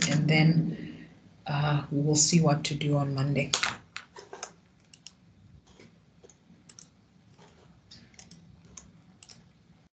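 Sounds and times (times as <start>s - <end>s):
low room hum: 0.0s - 9.9s.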